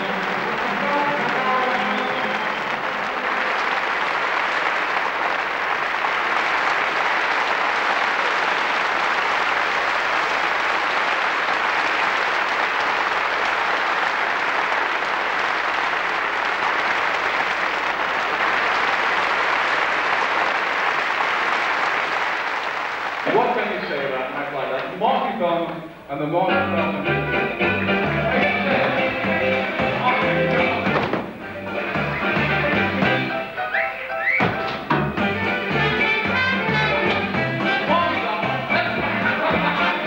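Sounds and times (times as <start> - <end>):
large audience applauding: 0.0 - 24.4.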